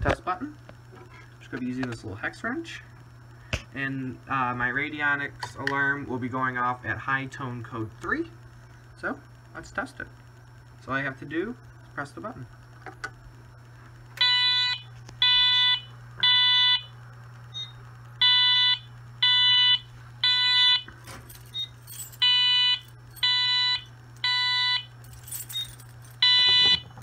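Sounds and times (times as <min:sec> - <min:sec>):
fire alarm horn beeping: 0:14.2 - 0:20.9, 0:21.5 - 0:27.0
keys rattling: 0:20.9 - 0:23.3, 0:24.9 - 0:27.0.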